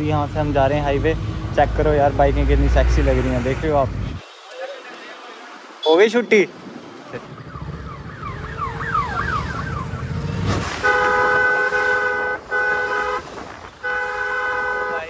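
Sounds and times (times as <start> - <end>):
low traffic rumble: 0.0 - 15.0
multi-tone vehicle horn: 10.8 - 15.0.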